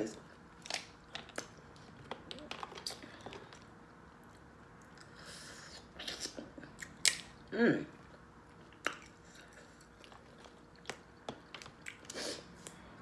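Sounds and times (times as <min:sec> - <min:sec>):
chewing and mouth noises: 0:08.0 - 0:12.9.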